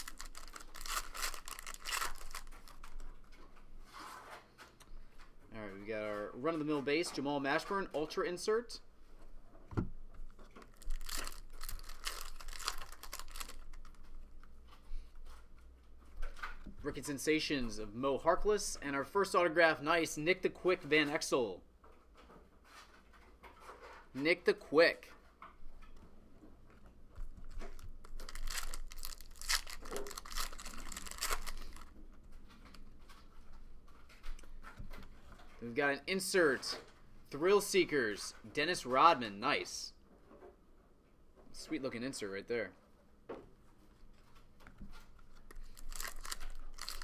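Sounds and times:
foil wrapper crinkling: 0.0s - 3.1s, 10.7s - 14.1s, 27.4s - 31.9s, 45.3s - 47.0s
cards rustling: 0.0s - 4.2s, 10.4s - 15.4s, 27.2s - 31.9s, 44.2s - 47.0s.

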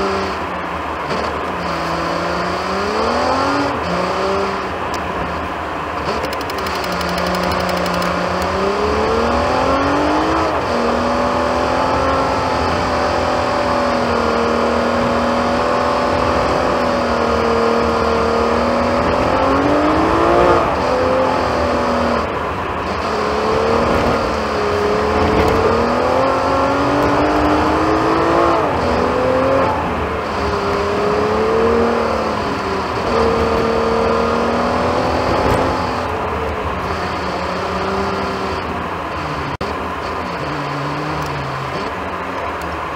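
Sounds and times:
car engine accelerating: 0.0s - 42.9s
road and tyre noise: 0.0s - 42.9s.

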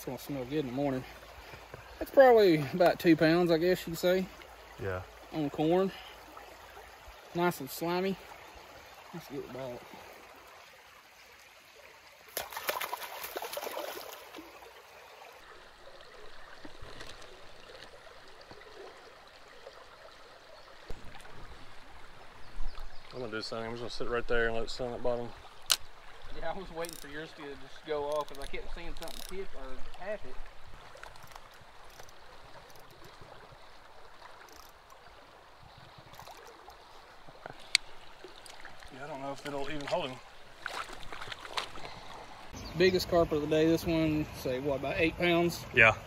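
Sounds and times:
creek water flowing: 0.0s - 46.0s
faint clicks: 37.4s - 39.9s.

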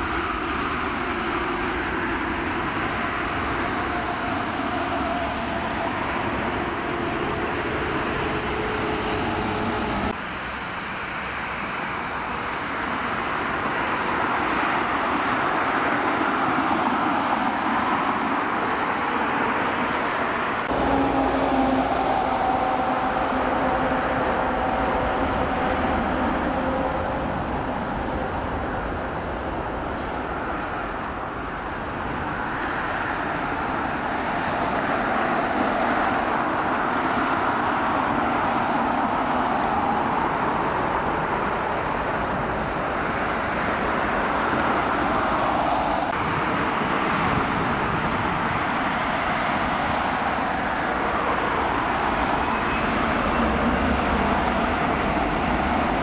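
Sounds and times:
jet engines whine and rumble: 0.0s - 56.0s
rising engine whine spooling up: 20.6s - 29.3s.

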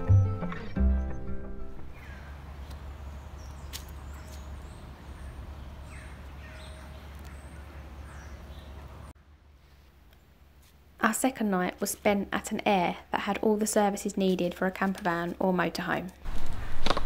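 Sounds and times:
music: 0.0s - 2.0s
birds chirping: 0.0s - 9.2s
single click: 3.7s - 4.4s.

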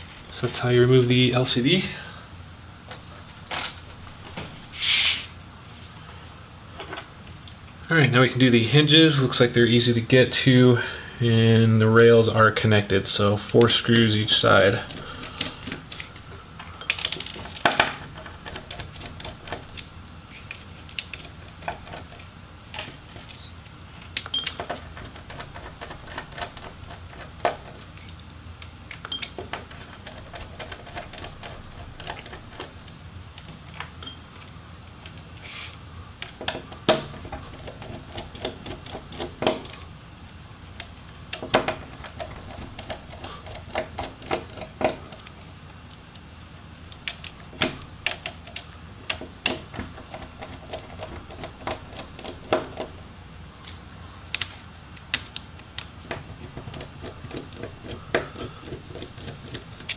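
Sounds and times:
small parts set down: 16.8s - 17.8s, 24.2s - 24.8s.

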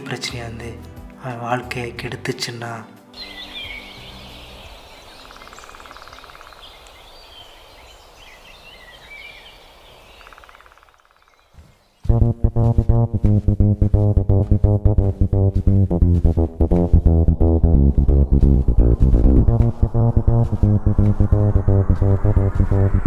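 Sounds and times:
birds chirping: 3.1s - 23.0s
music with plucked guitar and bass: 12.1s - 23.0s.

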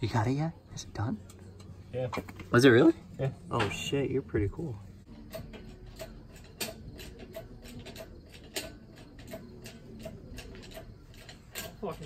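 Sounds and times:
engine hoist metallic clicks: 5.1s - 12.0s.

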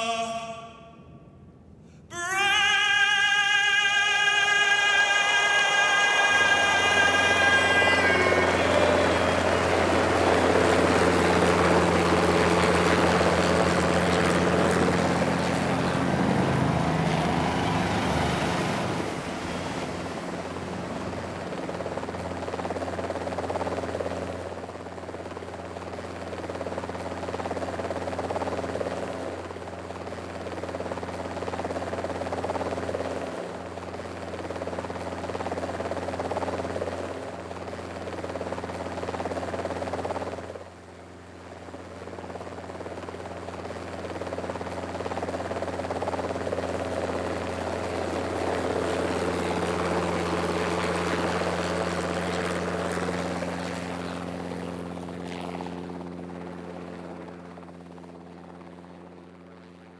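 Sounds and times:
helicopter rotors humming: 0.0s - 59.9s
rushing rotor wash: 14.4s - 20.8s.

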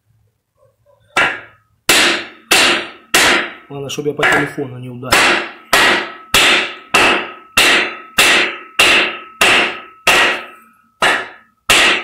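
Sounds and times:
hammer striking wooden block: 1.2s - 3.6s, 5.1s - 12.0s.

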